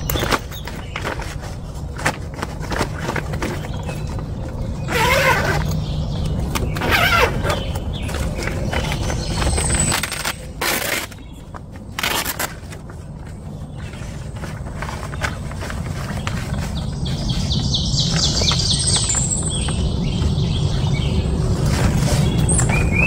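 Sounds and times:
bird chirping: 0:03.1 - 0:11.6, 0:13.2 - 0:23.0
fabric rustling: 0:12.0 - 0:17.6.

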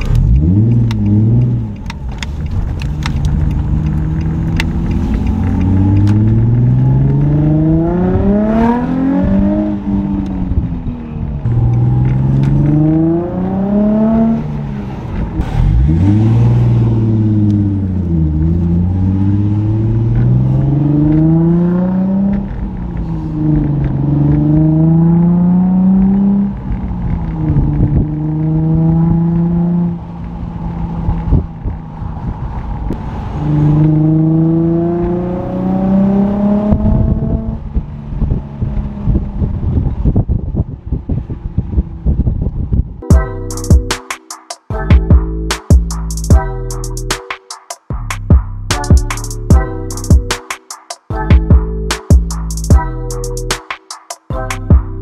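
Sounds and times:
car engine revving: 0:00.0 - 0:39.8.

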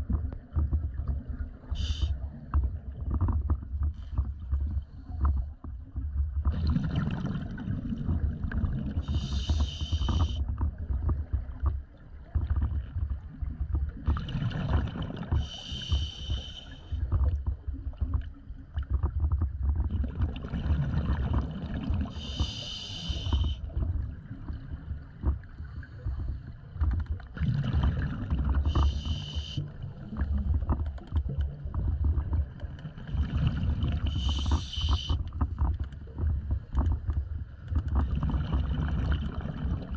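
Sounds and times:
exhaled bubbles gurgling: 0:00.0 - 0:39.9
regulator hissing inhalation: 0:09.1 - 0:10.4, 0:15.5 - 0:16.9, 0:22.2 - 0:23.6, 0:28.7 - 0:29.6, 0:34.1 - 0:35.2.

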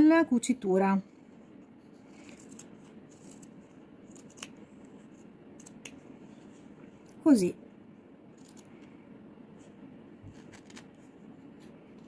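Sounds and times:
scissors snipping fabric: 0:02.3 - 0:04.6.

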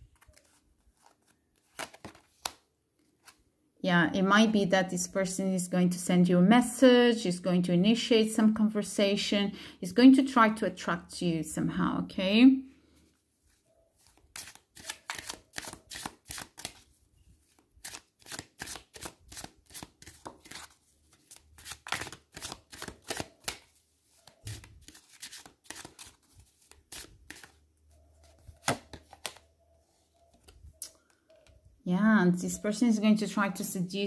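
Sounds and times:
cards being shuffled: 0:00.0 - 0:03.4, 0:13.5 - 0:27.6, 0:28.2 - 0:29.5.

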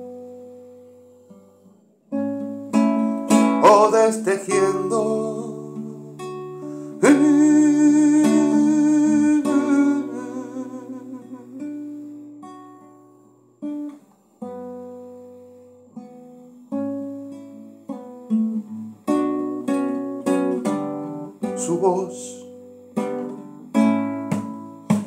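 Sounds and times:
classical guitar playing: 0:00.0 - 0:25.0.

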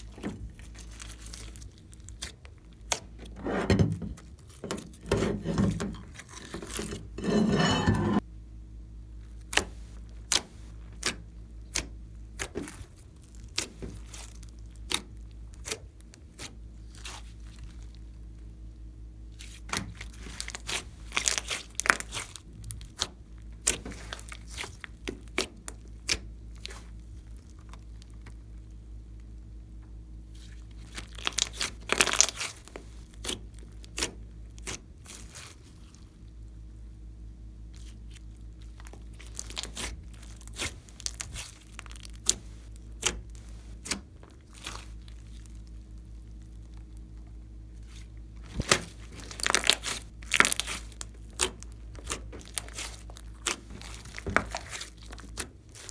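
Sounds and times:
steady low hum: 0:00.0 - 0:55.9
sticky slime clicks and crackles: 0:19.4 - 0:28.4, 0:30.8 - 0:36.0, 0:37.7 - 0:55.9.

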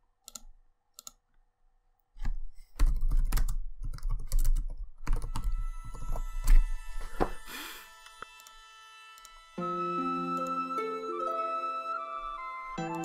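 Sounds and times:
typing on computer keyboard: 0:00.2 - 0:01.2, 0:02.8 - 0:06.2.

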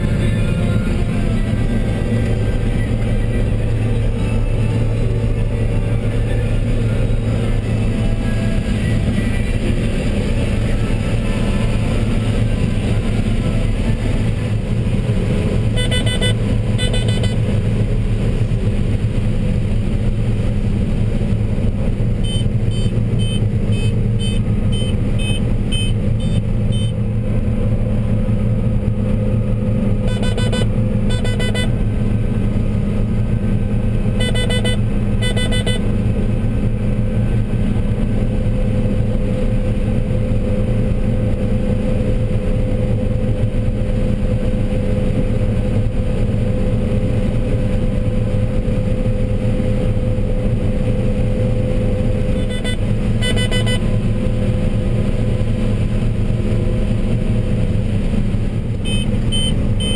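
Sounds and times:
combine engine and machinery drone: 0:00.0 - 0:59.9
high electronic beeps: 0:15.8 - 0:17.4, 0:22.2 - 0:27.0, 0:30.1 - 0:31.7, 0:34.2 - 0:35.8, 0:52.4 - 0:53.8, 0:58.9 - 0:59.9.

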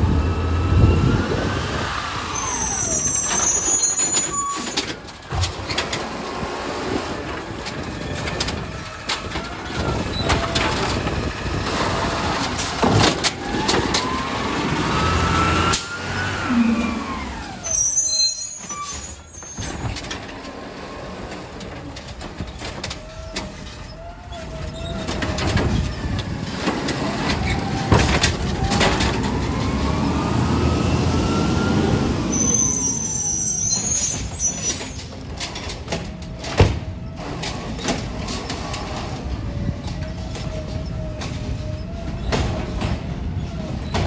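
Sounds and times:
garbage truck diesel engine revving: 0:05.6 - 0:18.0, 0:23.0 - 0:33.1.

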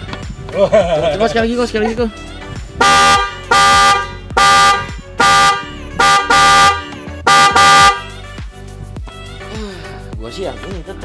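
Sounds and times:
electric car horn honks: 0:02.8 - 0:08.2.

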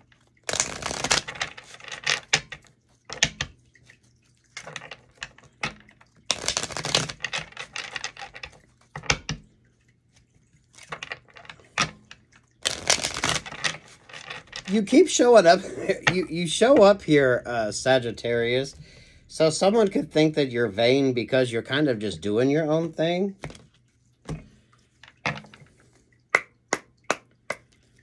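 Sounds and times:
cards being shuffled: 0:00.5 - 0:02.3, 0:06.3 - 0:08.5, 0:12.6 - 0:14.8.

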